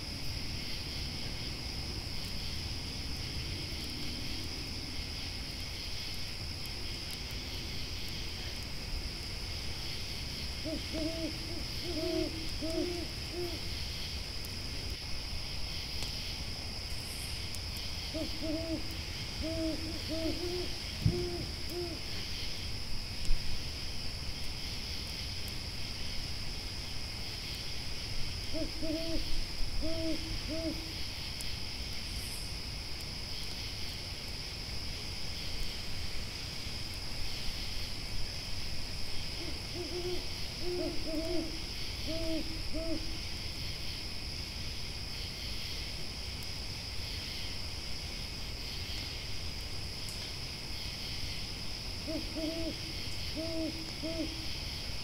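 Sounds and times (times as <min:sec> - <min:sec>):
night insects chirring: 0:00.0 - 0:55.0
owl hooting: 0:10.6 - 0:13.7, 0:18.1 - 0:22.1, 0:28.5 - 0:30.9, 0:39.4 - 0:43.2, 0:52.0 - 0:54.4.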